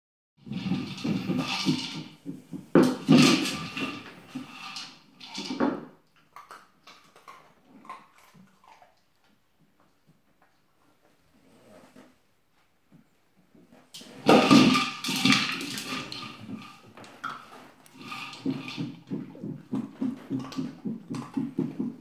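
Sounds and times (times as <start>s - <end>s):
plastic toy clattering on wooden floor: 0.5s - 5.9s, 14.0s - 19.1s.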